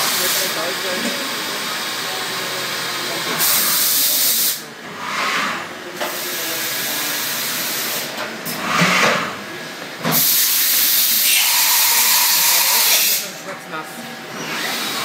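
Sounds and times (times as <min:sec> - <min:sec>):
machining centre hiss: 0:02.6 - 0:08.1, 0:10.1 - 0:13.4.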